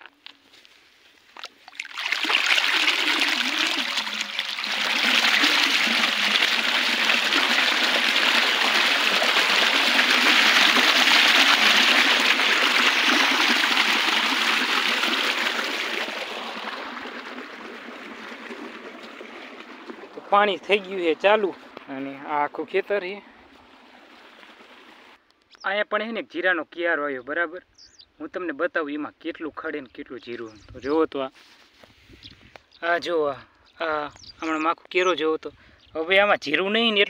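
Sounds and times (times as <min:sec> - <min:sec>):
water gushing and splashing: 0:01.6 - 0:22.2, 0:23.4 - 0:25.2.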